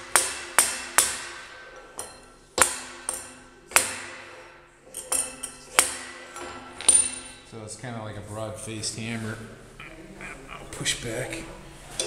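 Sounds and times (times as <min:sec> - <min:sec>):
hammer striking metal: 0:00.0 - 0:07.4.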